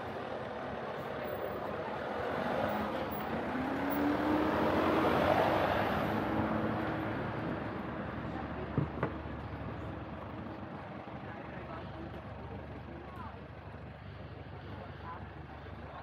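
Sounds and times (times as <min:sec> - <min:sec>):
vehicle engine passing: 0:01.8 - 0:08.5.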